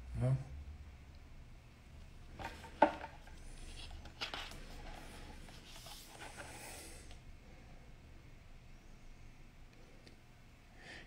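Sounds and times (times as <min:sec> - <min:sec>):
paper rustling: 0:02.4 - 0:06.7.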